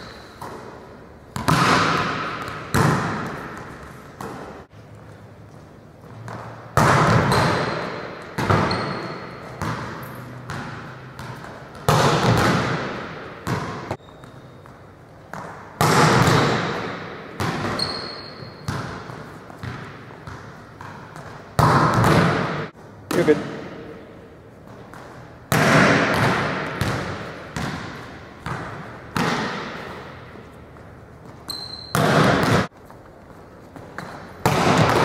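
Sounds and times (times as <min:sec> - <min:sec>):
volleyballs bouncing on gym floor: 0:00.0 - 0:35.0.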